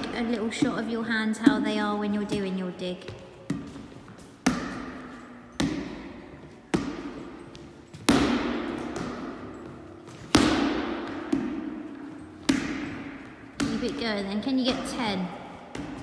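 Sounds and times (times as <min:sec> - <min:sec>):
volleyball hits echoing in hall: 0:00.0 - 0:16.0.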